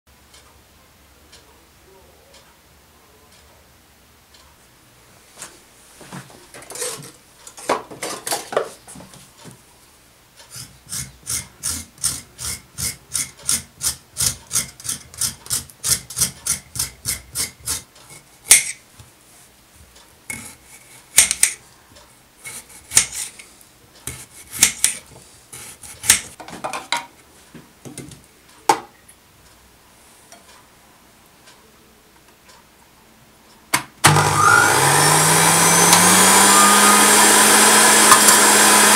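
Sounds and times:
knife scraping carrot: 6.7s - 7.2s, 10.5s - 18.3s, 20.3s - 21.6s, 22.4s - 26.4s
sharp clicks and knocks: 12.8s - 19.1s, 21.2s - 21.6s.

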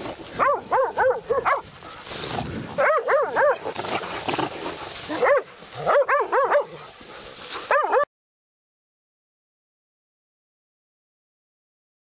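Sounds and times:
dogs barking: 0.2s - 2.0s, 2.7s - 8.1s.

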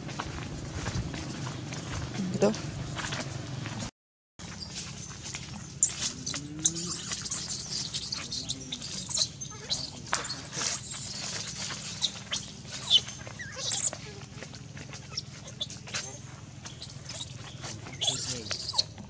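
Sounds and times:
baby monkey squealing: 5.8s - 14.3s, 14.9s - 19.0s.

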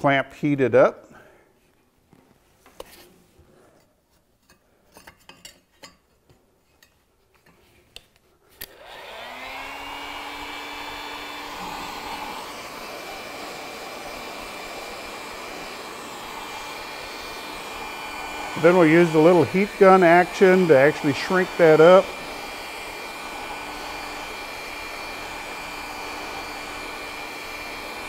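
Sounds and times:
heat gun blowing: 8.5s - 28.0s.

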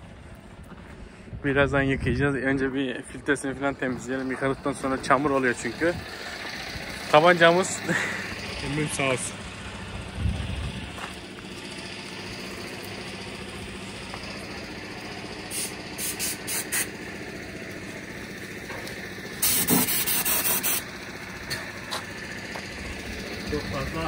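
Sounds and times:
steady engine hum: 0.0s - 24.0s
compressed air blasts hissing: 15.4s - 17.0s, 19.3s - 20.9s.

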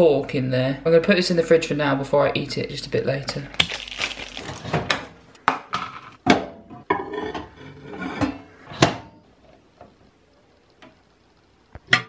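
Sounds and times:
plastic packet rustling: 3.5s - 4.9s.

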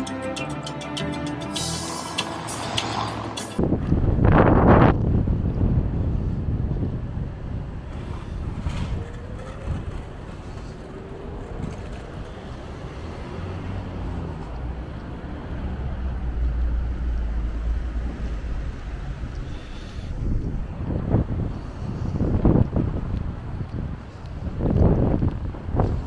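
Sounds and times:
traffic hum: 0.0s - 26.0s
wind on microphone: 3.6s - 26.0s
low rumble: 13.5s - 25.8s.

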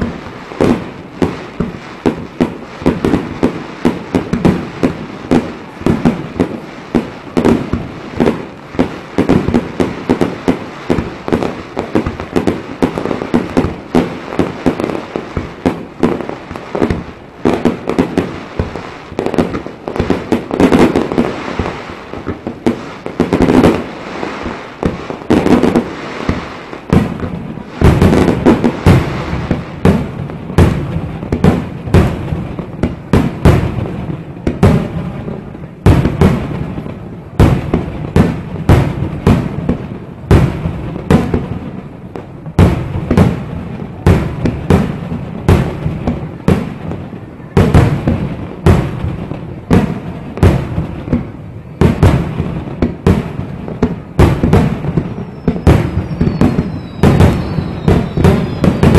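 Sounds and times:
fireworks shells bursting: 0.0s - 32.1s, 53.8s - 58.9s.

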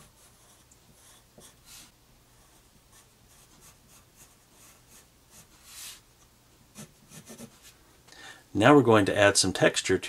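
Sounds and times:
pencil scratching on paper: 0.0s - 6.0s, 6.7s - 7.8s.

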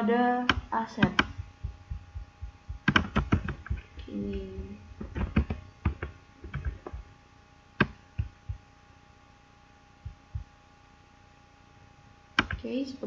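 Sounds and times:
mouse and keyboard clicks: 2.8s - 3.9s.

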